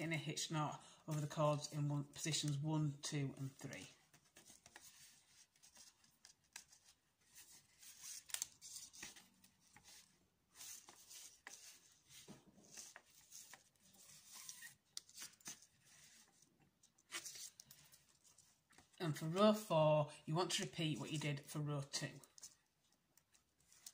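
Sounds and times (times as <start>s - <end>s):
cord rustling and scraping: 3.4s - 19.0s, 22.1s - 23.9s.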